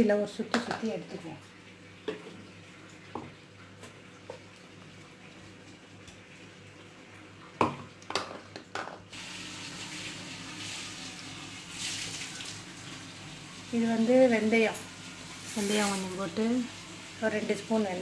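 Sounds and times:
hot oil sizzling: 9.1 - 18.0.

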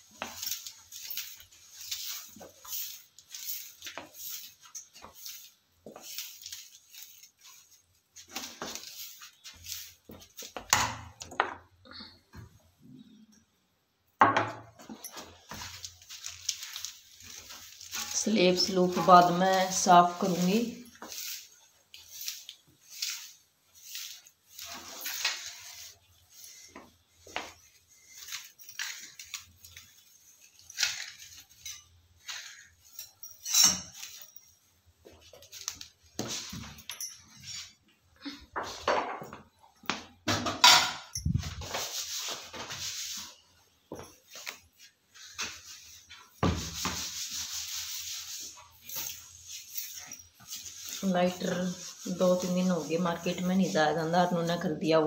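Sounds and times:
broom sweeping tiled floor: 0.0 - 13.2, 14.2 - 55.0.

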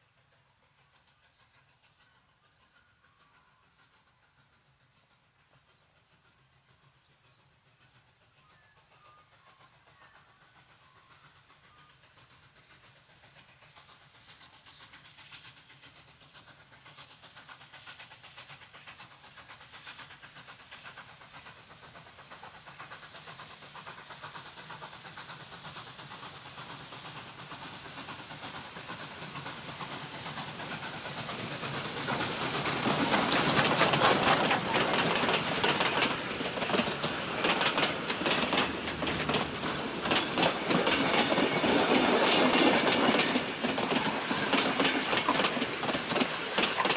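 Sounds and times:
steam locomotive exhaust beats: 0.0 - 46.9
wheels clattering on rails: 13.4 - 46.9.

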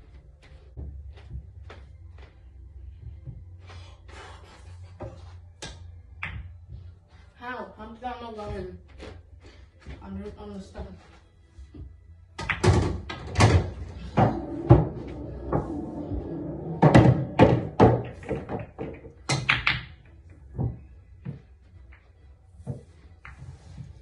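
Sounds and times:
balls thudding against cushions: 12.4 - 19.9
pool balls clacking: 12.4 - 19.9.

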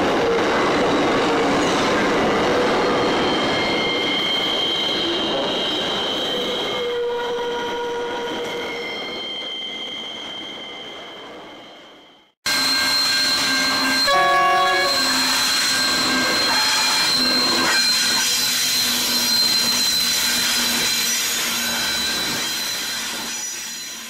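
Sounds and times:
high-pitched squeal: 0.6 - 24.0
multi-note locomotive horn blast: 12.5 - 17.0.

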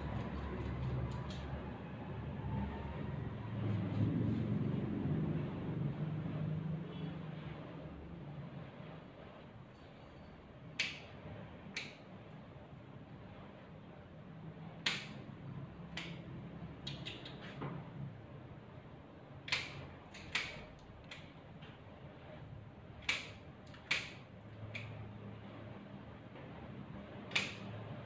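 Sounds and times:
steady low hum: 0.0 - 28.0
scissors snipping hair: 0.1 - 1.5.

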